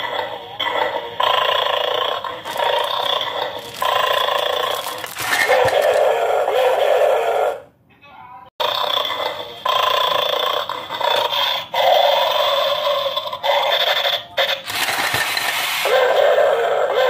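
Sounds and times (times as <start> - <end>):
plastic toy dog clattering: 2.5 - 6.2, 14.6 - 15.6
recorded dog sounds from toy speaker: 2.5 - 7.7, 9.0 - 14.9, 15.8 - 17.0.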